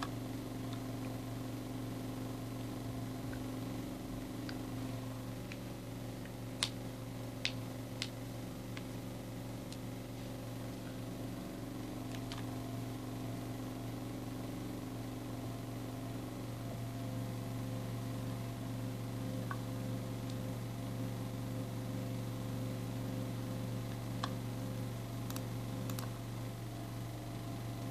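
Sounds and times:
low machine hum: 0.0 - 27.9
sharp clicks: 25.3 - 26.1.

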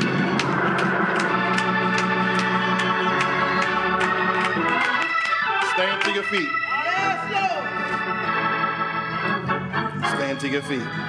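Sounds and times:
sharp rhythmic taps: 0.0 - 6.6
organ playing sustained chords: 0.0 - 11.0.

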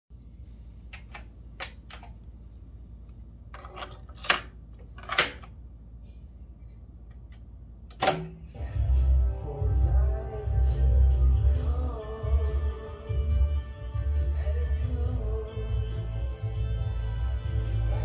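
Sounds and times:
low hum: 0.1 - 18.0
cassette deck clicks and clunks: 7.9 - 8.4.

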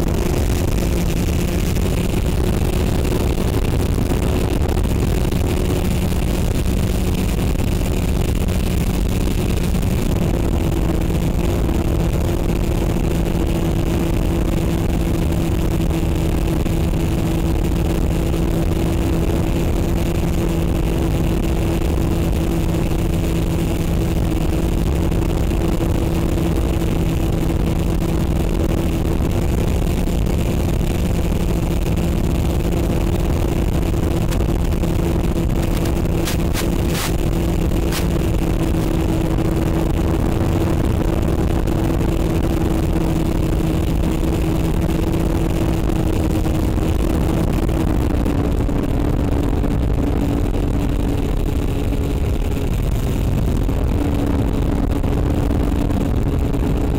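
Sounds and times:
wind rush: 32.9 - 42.0
electric motor and propeller hum: 33.4 - 40.1.

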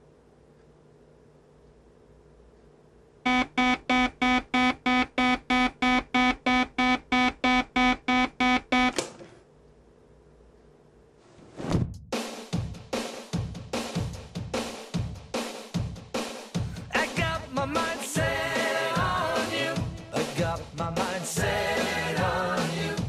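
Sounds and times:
drum-kit music: 3.3 - 8.8, 11.9 - 23.0
alarm clock beeping: 3.3 - 9.0.

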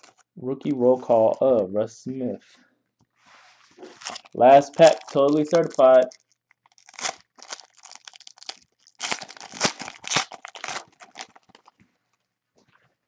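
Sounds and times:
foil wrapper tearing and crinkling: 3.8 - 11.8.

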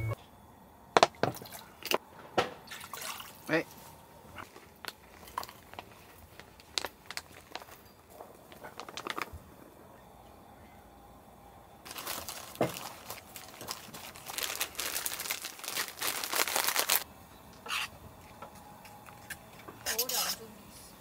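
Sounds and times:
crinkling and rustling: 3.8 - 9.4, 11.9 - 17.0.

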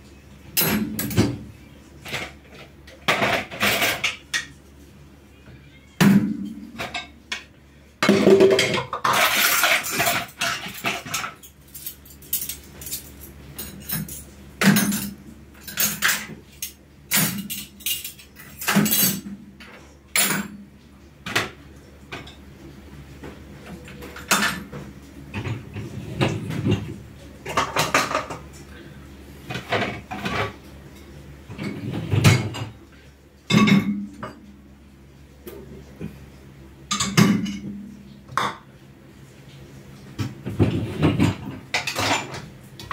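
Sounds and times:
dishes and cutlery clattering: 0.5 - 4.6, 6.0 - 20.6, 23.7 - 28.6, 29.5 - 32.8, 33.5 - 34.5, 36.9 - 38.7, 40.2 - 42.9.

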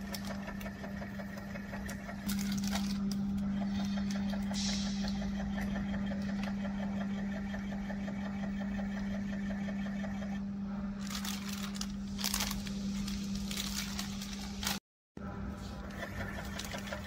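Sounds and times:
filling machine humming: 0.0 - 17.0
plastic pouches crinkling: 2.2 - 3.9, 11.0 - 14.8
fast machine ticking: 3.4 - 10.4.

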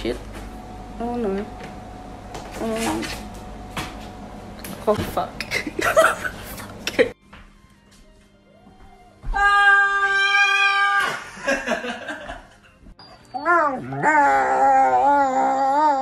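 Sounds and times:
long high cry: 9.3 - 11.4
dogs howling together: 13.4 - 16.0.

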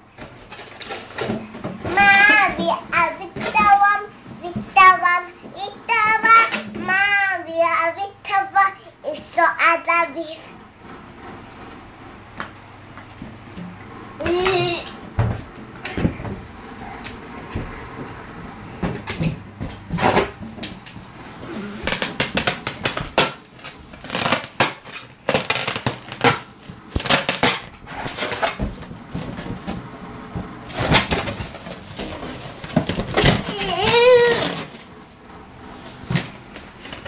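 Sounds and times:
plastic toys clattering on tiles: 0.2 - 2.6, 21.8 - 29.8.

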